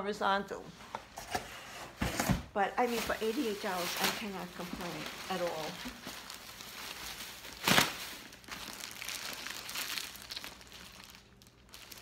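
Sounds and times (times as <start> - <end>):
plastic bag crinkling: 2.8 - 12.0.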